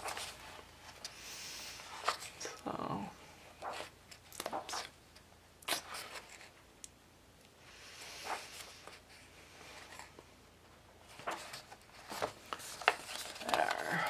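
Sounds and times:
paper pages turning: 0.0 - 1.1, 1.7 - 2.4, 3.6 - 5.0, 5.7 - 6.6, 11.0 - 14.0.

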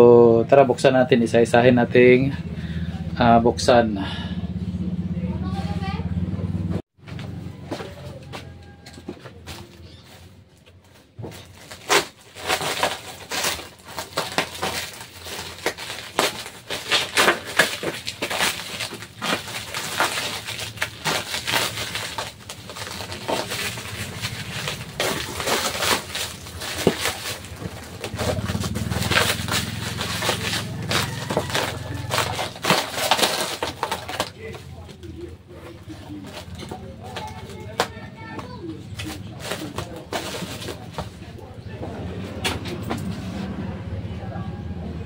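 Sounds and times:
bubble wrap and tape crackling: 9.4 - 41.5.

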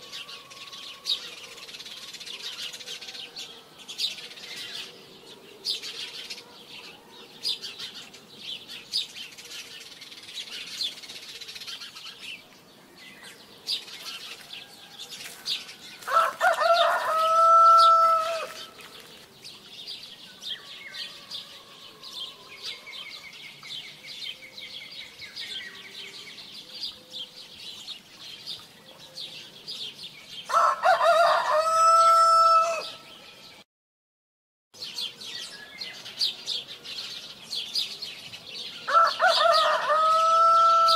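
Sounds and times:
rooster crowing: 16.0 - 18.7, 20.6 - 22.9, 30.5 - 33.0, 38.9 - 40.9.

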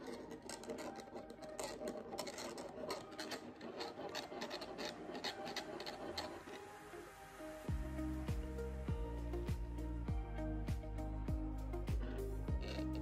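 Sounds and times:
plastic straw squeaking in cup lid: 0.0 - 6.8, 12.6 - 13.0.

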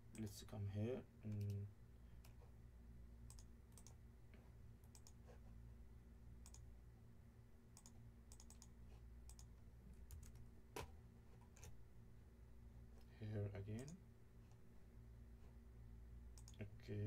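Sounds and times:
low electrical hum: 0.0 - 17.0
computer mouse clicks: 1.3 - 1.6, 3.3 - 4.0, 4.8 - 5.2, 6.4 - 6.7, 7.8 - 9.5, 13.8 - 14.0, 16.4 - 16.6.

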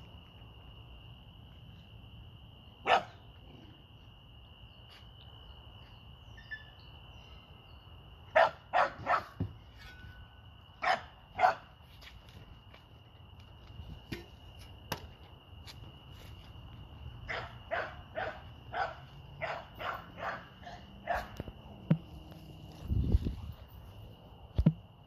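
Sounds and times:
dog barking: 2.8 - 3.2, 8.3 - 9.4, 10.8 - 11.7, 17.3 - 21.4.

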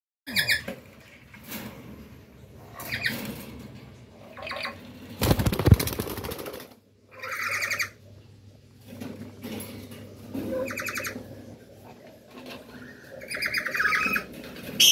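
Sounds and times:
rattling squawk: 2.7 - 3.4, 7.1 - 8.0, 10.4 - 11.3, 12.4 - 14.9
wing flapping: 5.2 - 6.8
parrots squawking harshly: 7.1 - 8.0, 10.5 - 11.2, 12.7 - 14.9.

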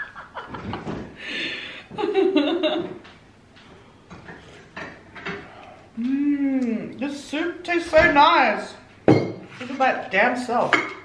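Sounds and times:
woman laughing: 0.0 - 1.1, 1.9 - 2.9.

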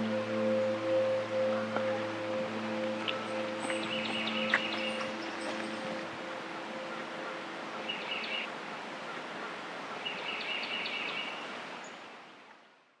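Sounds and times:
steady background hiss: 0.0 - 13.0
bird chirps: 1.4 - 8.5, 9.9 - 12.0.

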